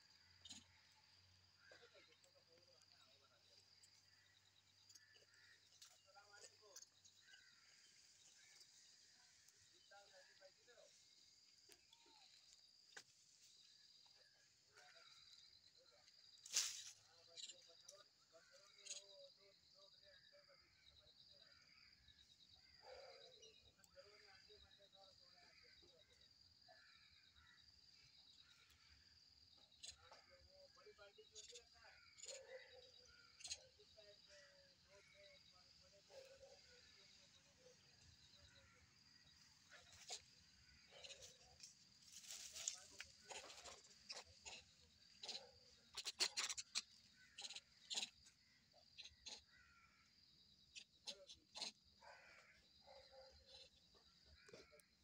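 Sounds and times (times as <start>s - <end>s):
faint animal call: 29.8s - 55.0s
insect trilling: 36.2s - 52.7s
crackles and rustles: 39.7s - 44.8s.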